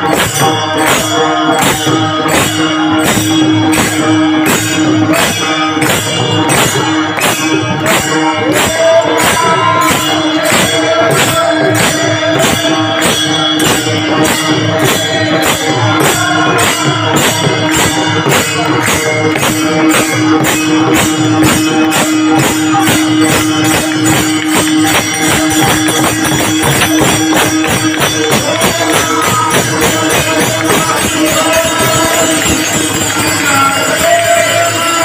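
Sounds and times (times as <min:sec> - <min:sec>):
barrel drum playing: 0:00.0 - 0:35.0
hand cymbals clashing: 0:00.0 - 0:35.0
voices singing: 0:06.4 - 0:19.1, 0:27.8 - 0:35.0.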